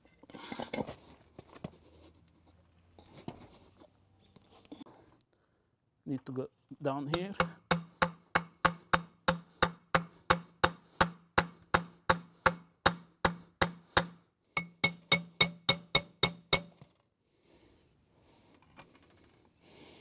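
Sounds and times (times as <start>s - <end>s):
hammer tapping on concrete: 7.1s - 16.8s.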